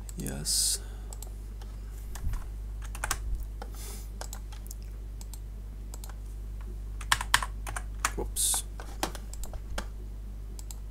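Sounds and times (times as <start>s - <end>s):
steady low hum: 0.0s - 10.9s
keyboard and mouse clicks: 1.1s - 6.2s, 7.0s - 9.9s, 10.6s - 10.9s.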